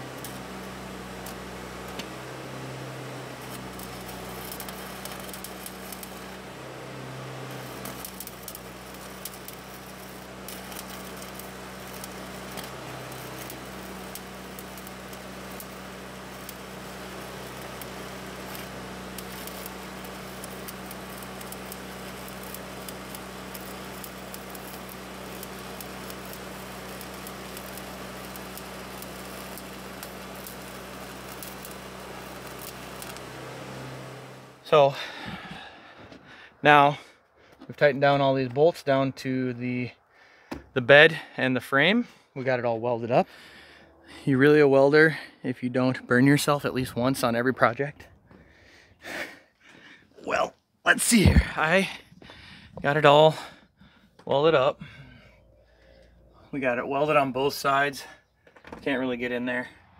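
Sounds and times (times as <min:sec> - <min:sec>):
arc welding crackle and hiss: 0:00.0 - 0:35.6, 0:46.0 - 0:48.3, 0:50.9 - 0:53.6
low steady hum: 0:00.0 - 0:41.3.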